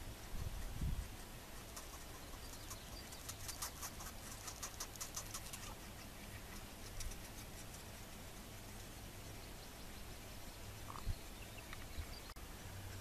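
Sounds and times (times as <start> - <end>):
nestling begging with scratchy ticks: 0.2 - 11.9.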